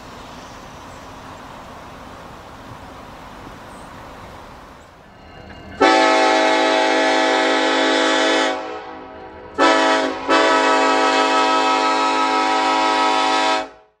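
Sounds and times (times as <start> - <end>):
train horn blasts: 5.8 - 14.0.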